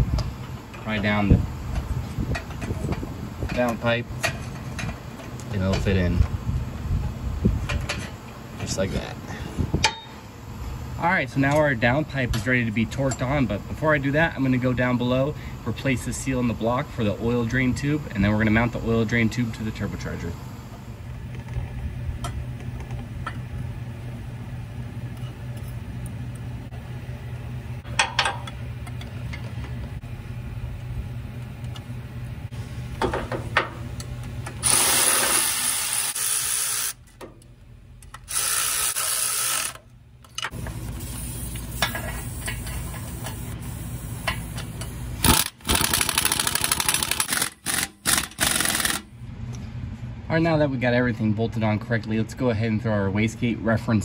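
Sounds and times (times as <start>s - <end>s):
low hum: 0.0s - 34.8s
electric ratchet running: 34.6s - 37.0s, 38.1s - 39.8s, 45.2s - 49.1s.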